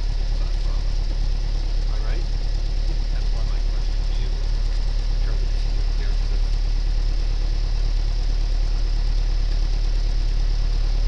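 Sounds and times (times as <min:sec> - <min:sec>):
airplane engine droning: 0:00.0 - 0:11.0.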